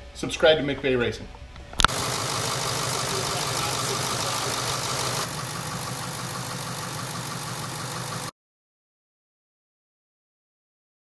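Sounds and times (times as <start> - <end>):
diesel engine idling: 1.8 - 8.3.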